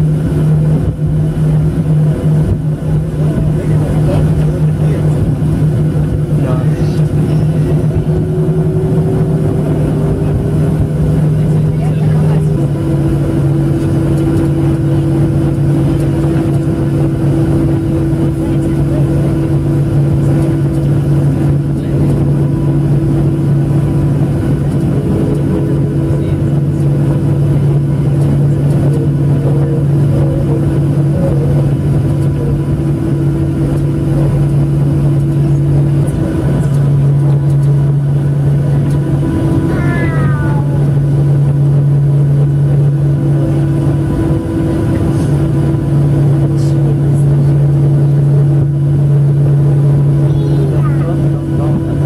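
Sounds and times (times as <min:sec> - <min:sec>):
airplane cabin engine drone: 0:00.0 - 0:52.0.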